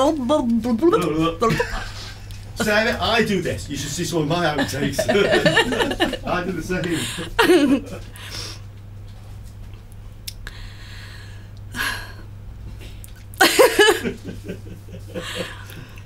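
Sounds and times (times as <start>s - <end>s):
woman's voice: 0.0s - 1.7s
woman laughing softly: 13.4s - 16.0s.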